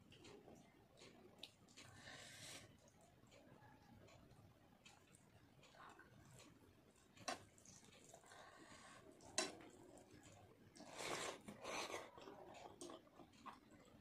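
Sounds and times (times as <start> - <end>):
wet chewing: 2.6 - 14.0.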